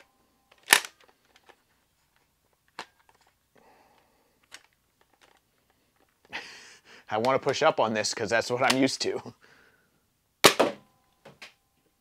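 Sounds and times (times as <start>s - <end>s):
sharp plastic snap: 0.6s - 1.0s.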